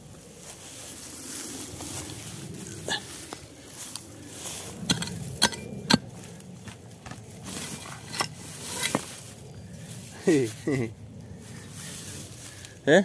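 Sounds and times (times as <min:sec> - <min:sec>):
hand tool knocking and scraping stones: 0:04.8 - 0:09.1.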